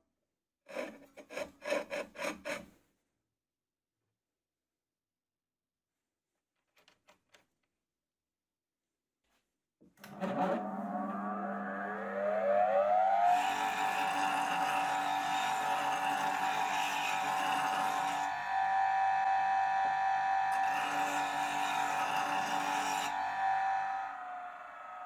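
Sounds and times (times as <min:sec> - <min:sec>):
bench grinder whining: 0:10.0 - 0:25.0.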